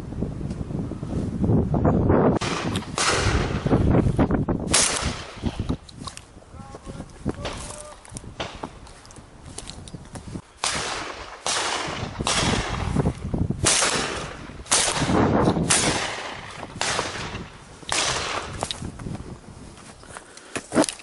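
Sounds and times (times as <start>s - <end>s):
shotgun shots echoing: 2.4s - 3.8s, 4.7s - 5.6s, 10.6s - 18.6s.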